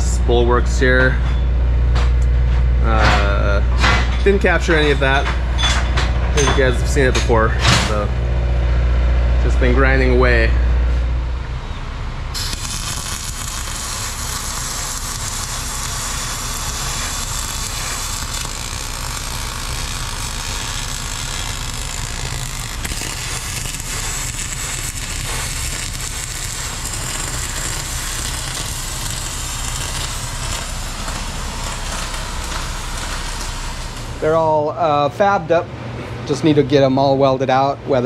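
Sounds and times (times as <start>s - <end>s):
welding arc sizzling: 12.2s - 35.0s.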